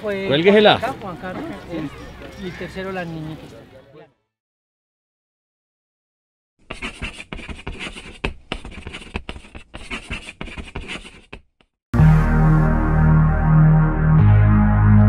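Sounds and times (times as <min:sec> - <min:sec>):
pencil scratching on paper: 0:06.6 - 0:11.5
music with held bass notes: 0:12.0 - 0:15.0.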